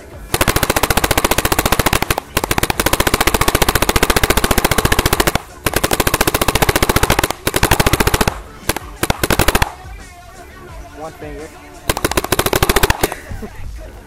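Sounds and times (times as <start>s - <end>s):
paintball marker rapid firing: 0.3s - 9.9s, 11.9s - 13.3s.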